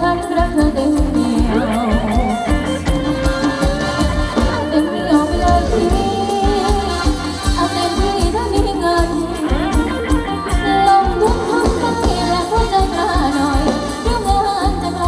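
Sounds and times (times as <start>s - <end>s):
person singing: 0.0s - 15.0s.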